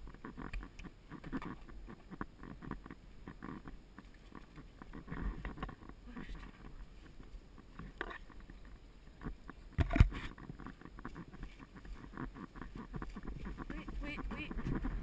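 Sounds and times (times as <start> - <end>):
rustling and tack noise: 4.0 - 15.0.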